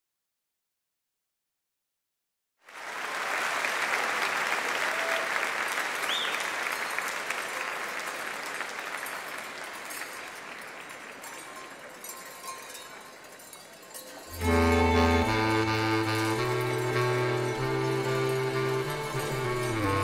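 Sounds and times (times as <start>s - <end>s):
audience applauding: 2.6s - 12.1s, 14.4s - 20.0s
whistle from crowd: 6.0s - 7.0s.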